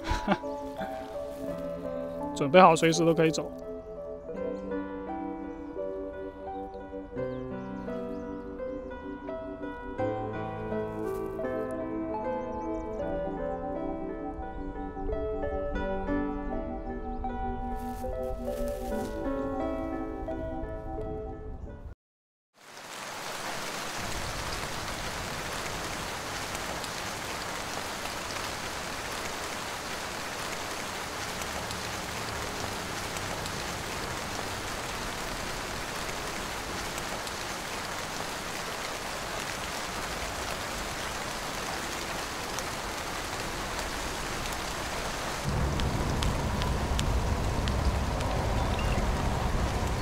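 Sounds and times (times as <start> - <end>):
rain falling on river: 0.0 - 3.6, 22.6 - 50.0
low rumble: 45.5 - 50.0.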